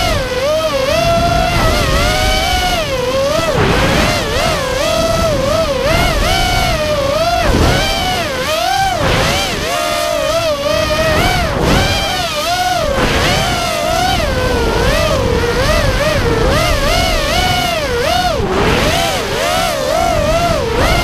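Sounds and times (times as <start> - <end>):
rushing air rumble: 0.0 - 9.6
quadcopter motors whining: 0.0 - 21.0.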